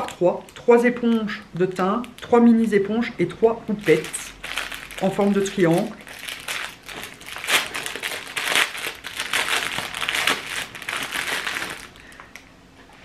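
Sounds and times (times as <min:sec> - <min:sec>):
packaging crinkling and rustling: 0:03.7 - 0:12.5.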